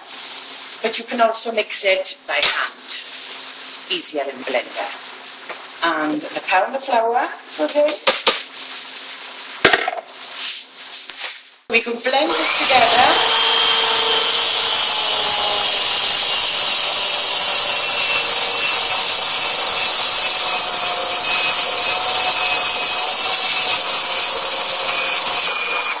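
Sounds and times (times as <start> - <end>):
electric blender whining: 12.2 - 26.0.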